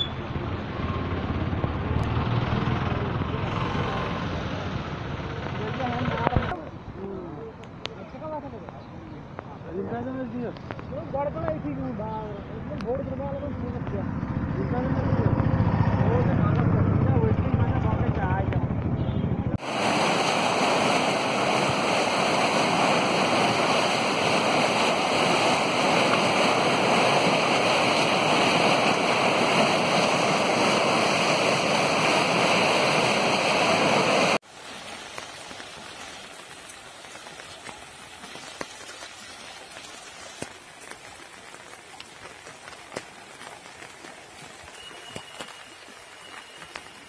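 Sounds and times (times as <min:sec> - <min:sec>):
loud rush of water: 0:19.6 - 0:47.0.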